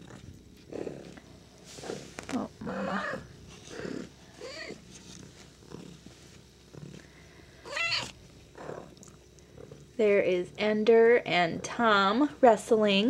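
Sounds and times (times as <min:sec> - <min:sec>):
cat meowing: 0:07.7 - 0:08.2.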